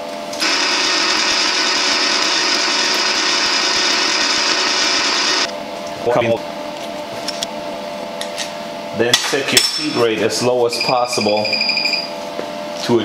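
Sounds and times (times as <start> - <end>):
welder wire feed motor whirring: 0.3 - 5.5.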